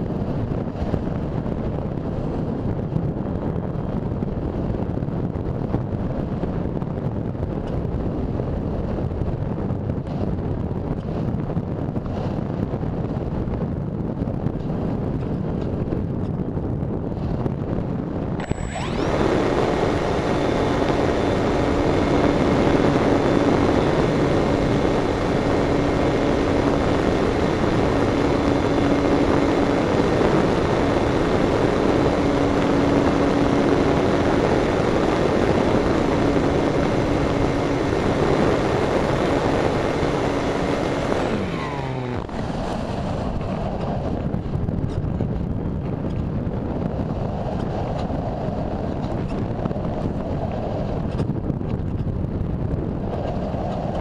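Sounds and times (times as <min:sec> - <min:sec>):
airflow noise: 0:17.1 - 0:54.0
electric motor whine: 0:18.3 - 0:45.1.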